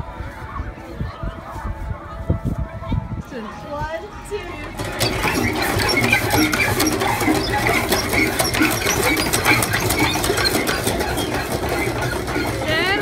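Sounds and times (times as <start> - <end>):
pump handles clanking: 4.6 - 13.0.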